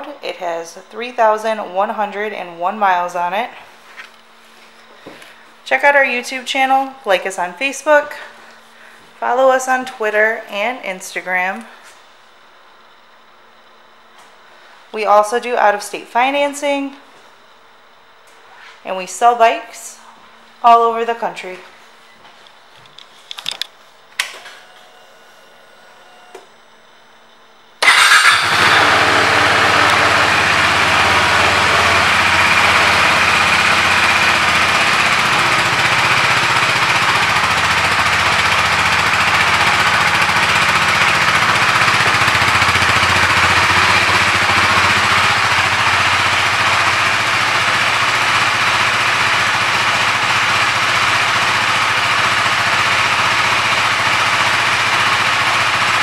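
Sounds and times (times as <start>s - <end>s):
motorcycle engine starting and idling: 27.8s - 56.0s.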